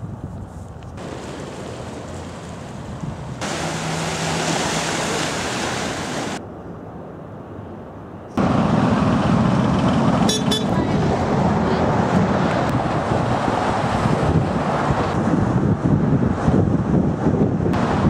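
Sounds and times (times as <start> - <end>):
wind buffeting microphone: 0.0 - 6.4, 8.4 - 18.0
wind: 0.0 - 18.0
waves: 1.0 - 6.4.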